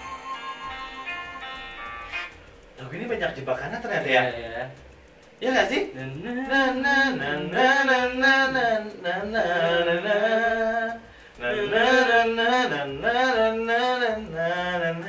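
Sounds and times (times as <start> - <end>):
man singing unaccompanied: 5.4 - 15.0.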